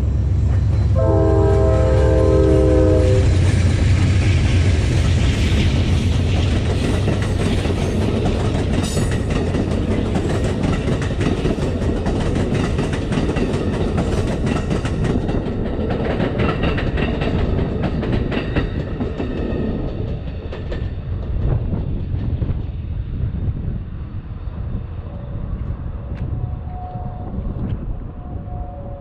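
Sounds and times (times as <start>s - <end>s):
locomotive engine droning: 0.0s - 6.7s, 24.4s - 29.0s
train cars rumbling: 0.0s - 29.0s
train wheels clickety-clack: 0.1s - 23.6s
train horn: 0.9s - 3.5s, 26.0s - 29.0s.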